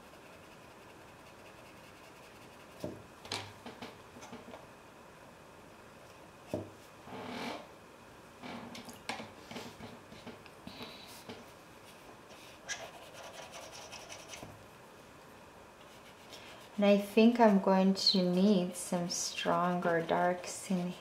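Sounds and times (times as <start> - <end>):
brush scrubbing on wet paper: 0.0 - 2.8, 15.8 - 21.0.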